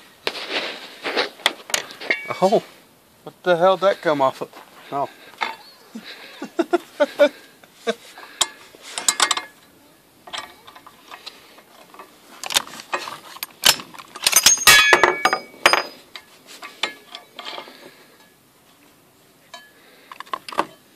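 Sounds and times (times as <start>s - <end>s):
metallic clicks and knocks: 8.4s - 17.7s
ringing metal clinks: 14.2s - 16.0s.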